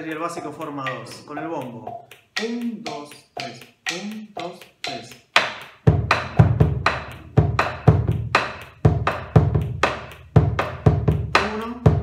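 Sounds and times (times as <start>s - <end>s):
sticks clicking on wooden rim: 0.0s - 12.0s
deep drum strokes: 5.4s - 12.0s.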